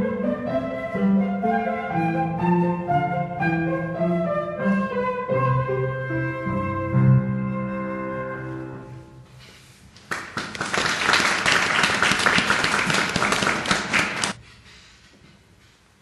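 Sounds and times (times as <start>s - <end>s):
audience applauding: 10.0s - 14.4s.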